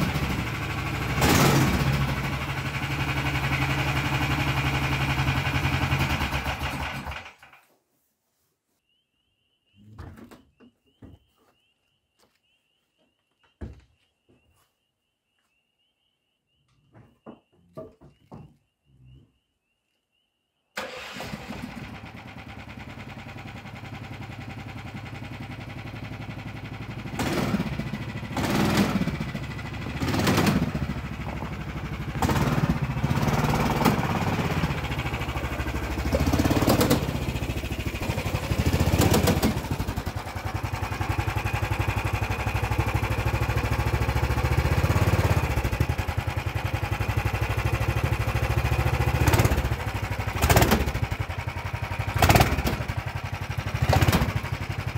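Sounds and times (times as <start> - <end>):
golf cart engine revving: 0.0 - 7.5, 20.8 - 54.9.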